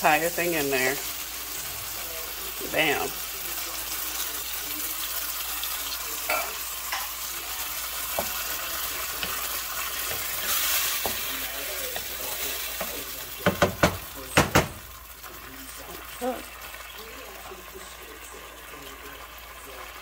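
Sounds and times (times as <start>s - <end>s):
food sizzling in a skillet: 0.0s - 20.0s
spatula stirring and scraping: 0.1s - 14.3s.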